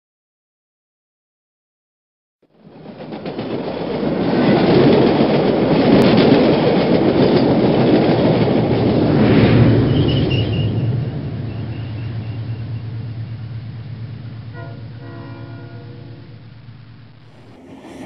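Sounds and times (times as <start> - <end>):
train wheels clickety-clack: 2.5 - 14.8, 17.3 - 18.0.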